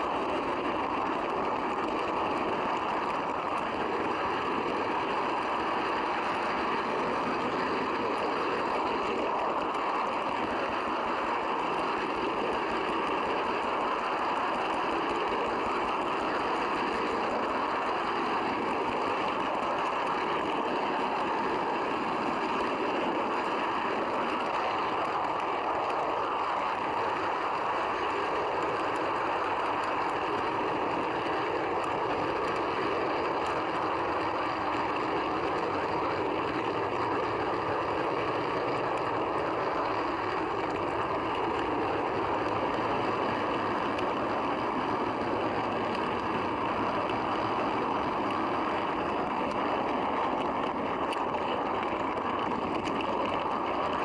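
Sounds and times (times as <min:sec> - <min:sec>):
model train wheels rumbling on rails: 0:00.0 - 0:54.0.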